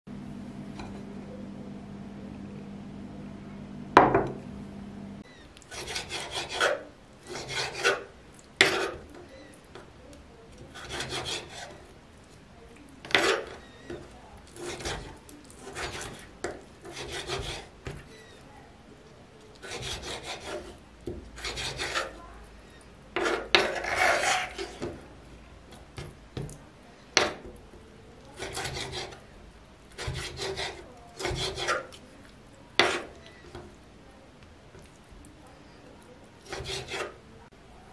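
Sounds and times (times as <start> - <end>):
low steady hum: 0.1 - 5.7
knife slicing on wooden board: 13.1 - 13.6, 23.2 - 24.9, 28.4 - 29.2, 30.0 - 32.0, 32.8 - 33.2, 36.4 - 37.2.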